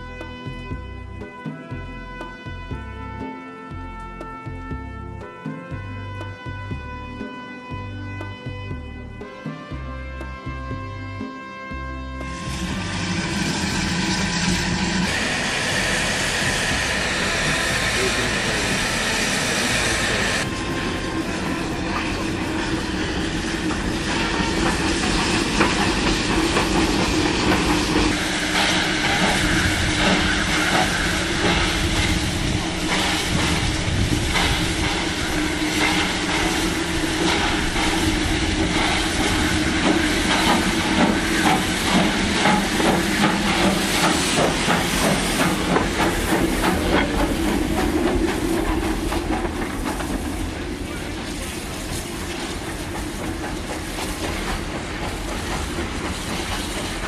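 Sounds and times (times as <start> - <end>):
steam locomotive exhaust chuffs: 12.1 - 57.0
steam hissing: 12.3 - 57.0.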